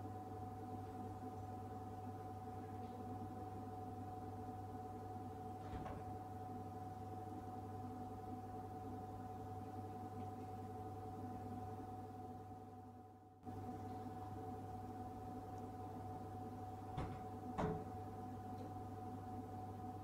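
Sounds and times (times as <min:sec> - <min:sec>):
vending machine humming: 0:00.0 - 0:20.0
faint knock: 0:17.0 - 0:18.0.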